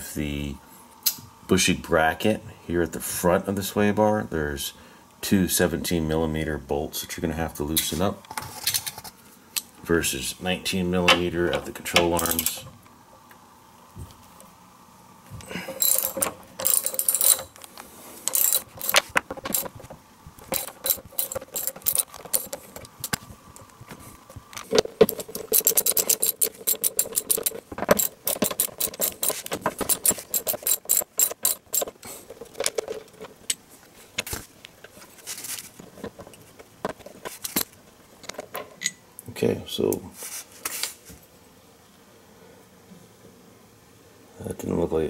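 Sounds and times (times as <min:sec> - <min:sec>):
ratchet wrench clicking: 0:15.8 - 0:17.6, 0:18.2 - 0:19.7, 0:20.5 - 0:23.2, 0:25.0 - 0:32.9.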